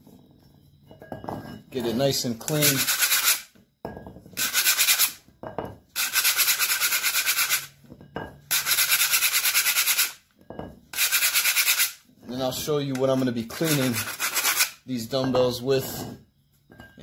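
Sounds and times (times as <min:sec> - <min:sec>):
sanding block scraping metal: 0:02.2 - 0:03.5, 0:04.4 - 0:05.2, 0:06.0 - 0:07.7, 0:08.5 - 0:10.2, 0:10.9 - 0:12.0, 0:13.0 - 0:14.8.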